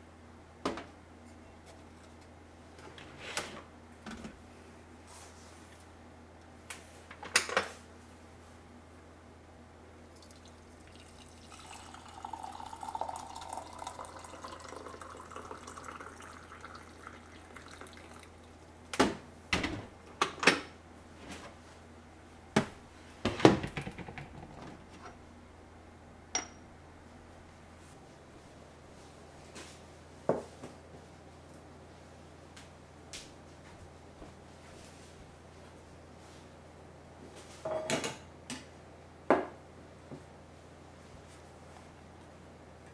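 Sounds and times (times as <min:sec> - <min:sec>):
water pouring into teapot: 0:10.2 - 0:18.6.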